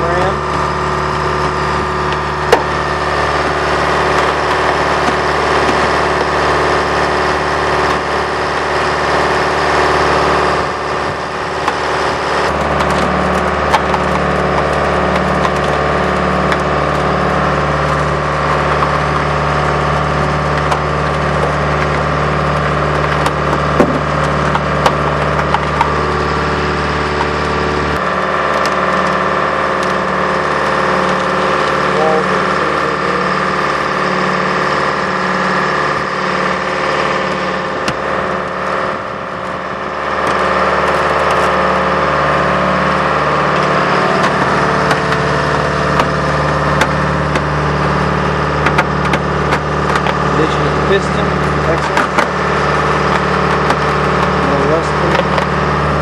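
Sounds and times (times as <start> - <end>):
diesel engine running: 0.0 - 56.0.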